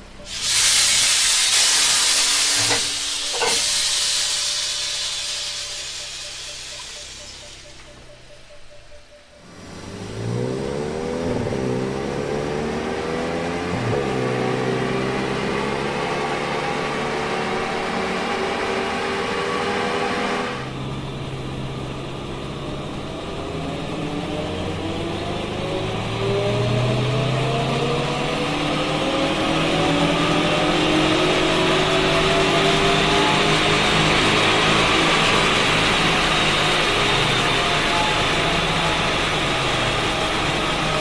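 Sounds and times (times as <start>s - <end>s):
car engine at full throttle: 9.4s - 41.0s.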